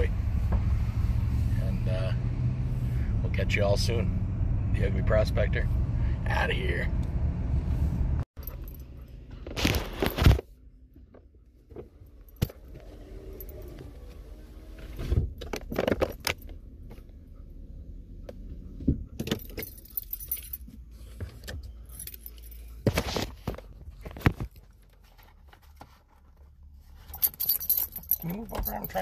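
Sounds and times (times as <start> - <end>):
low rumble of truck cab: 0.0 - 29.0
small metal pieces jingling: 27.0 - 29.0.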